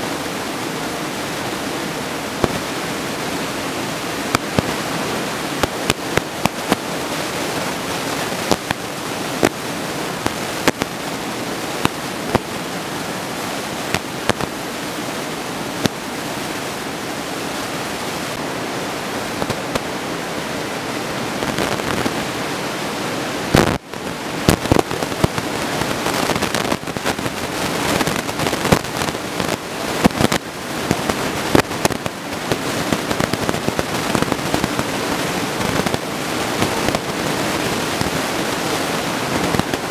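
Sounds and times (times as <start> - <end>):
sharp crackles and pops: 2.4 - 2.7, 4.2 - 4.9, 5.6 - 6.9, 8.1 - 11.1, 11.7 - 12.6, 13.8 - 14.6, 19.4 - 19.9, 21.4 - 22.4, 23.5 - 37.2, 39.1 - 39.9.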